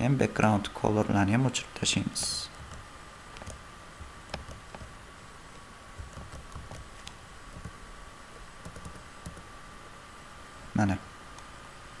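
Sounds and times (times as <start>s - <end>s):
keyboard key clicks: 6.0s - 7.8s, 8.6s - 9.4s.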